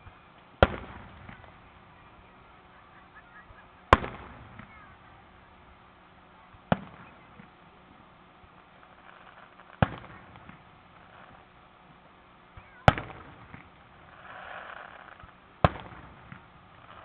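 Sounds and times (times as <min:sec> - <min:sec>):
firework bangs with echo: 0:00.6 - 0:01.6, 0:03.4 - 0:05.2, 0:06.6 - 0:07.5, 0:09.0 - 0:11.4, 0:12.6 - 0:17.0.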